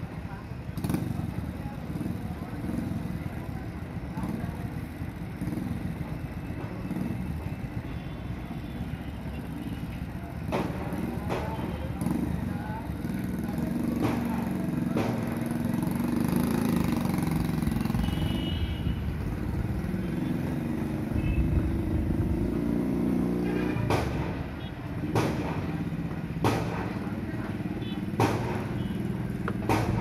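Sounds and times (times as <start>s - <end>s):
motorcycle engine running: 0.6s - 24.4s
sharp knocks: 28.1s - 28.8s, 29.4s - 30.0s.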